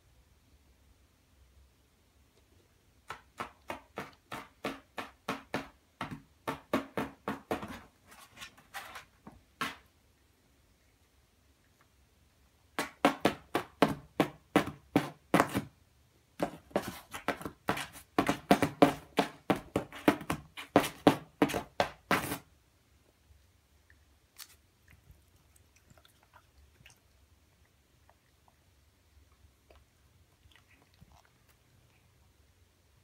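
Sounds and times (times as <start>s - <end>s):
cat claws scratching paper: 7.6s - 9.8s.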